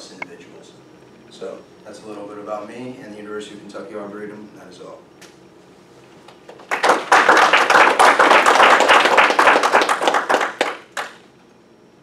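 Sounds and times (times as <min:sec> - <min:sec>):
audience applauding: 0:06.5 - 0:11.2.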